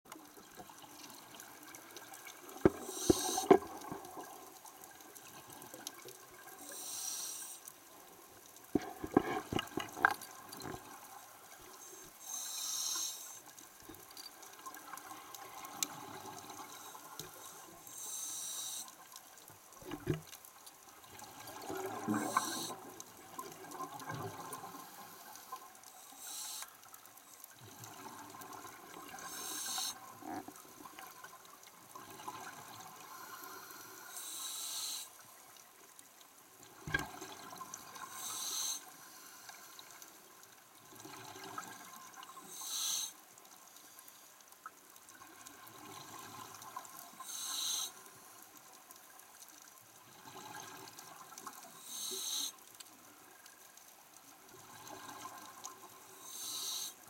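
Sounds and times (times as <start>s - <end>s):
regulator inhale hiss: 2.7s - 3.9s, 6.6s - 7.7s, 11.8s - 13.5s, 16.7s - 19.0s, 22.1s - 22.8s, 24.7s - 26.8s, 29.2s - 30.4s, 33.0s - 35.2s, 38.0s - 40.0s, 42.4s - 43.2s, 47.2s - 48.0s, 51.8s - 52.6s, 56.1s - 57.0s.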